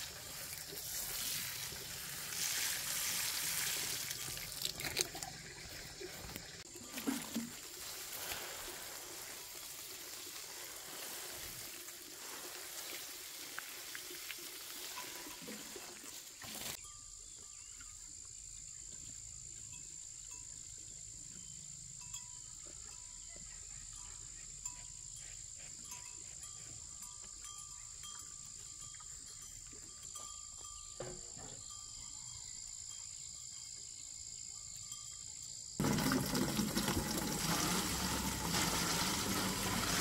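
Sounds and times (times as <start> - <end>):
running water rushing: 0.0 - 16.8, 35.8 - 40.0.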